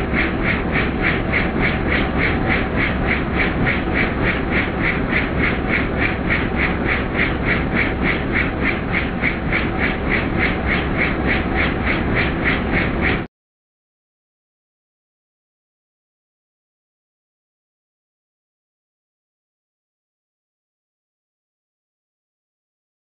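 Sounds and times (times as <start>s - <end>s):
helicopter cabin drone: 0.0s - 13.3s.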